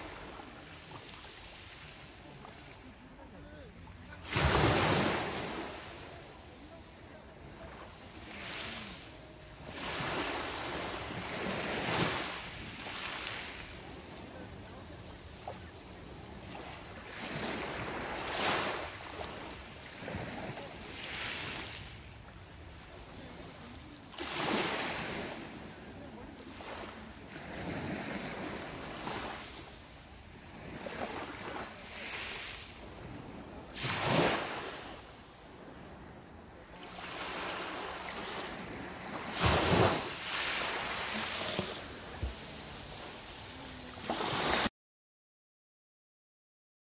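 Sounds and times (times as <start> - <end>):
waves washing over pebble beach: 4.1 - 6.8, 7.9 - 14.4, 30.6 - 35.8, 36.9 - 44.7.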